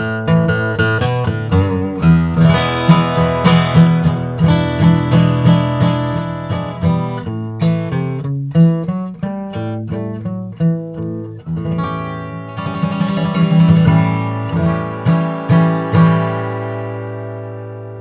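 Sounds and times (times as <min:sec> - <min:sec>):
fingerstyle acoustic guitar: 0:00.0 - 0:18.0.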